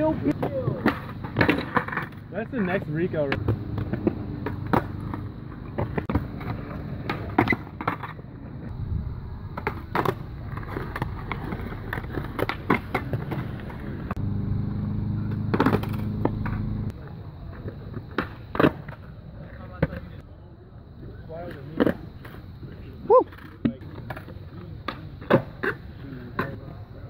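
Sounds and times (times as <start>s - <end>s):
skateboard wheels rolling on concrete: 0.0s - 27.0s
skateboard deck clacking: 0.2s - 2.2s, 9.5s - 14.1s.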